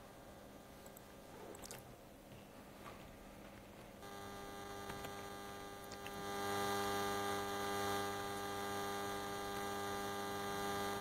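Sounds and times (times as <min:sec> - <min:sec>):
electrical mains hum: 0:00.0 - 0:11.0
faint clicks: 0:00.8 - 0:01.8, 0:04.8 - 0:06.2.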